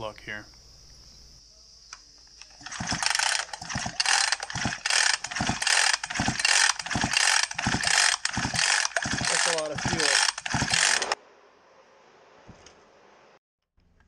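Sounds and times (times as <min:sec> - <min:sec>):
chainsaw starter rope pulls: 0:02.4 - 0:11.2.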